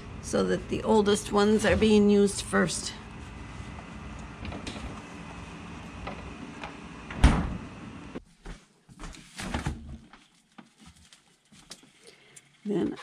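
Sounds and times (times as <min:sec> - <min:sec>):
steady background hum: 0:00.0 - 0:13.0
refrigerator door thud: 0:07.1 - 0:07.6.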